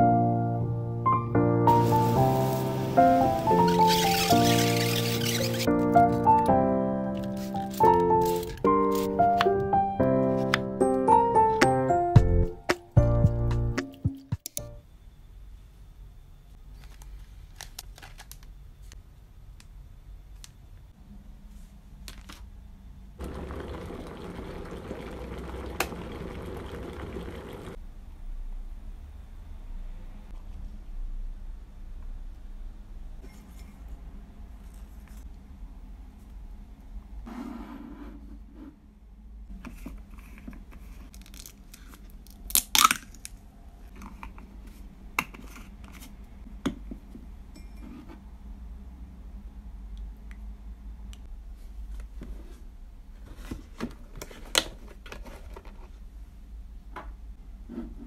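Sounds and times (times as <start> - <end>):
crinkly seal tearing: 3.4 - 5.7, 7.1 - 9.2, 16.9 - 18.5, 41.1 - 43.4
electric kettle bubbling rumble: 23.2 - 27.8.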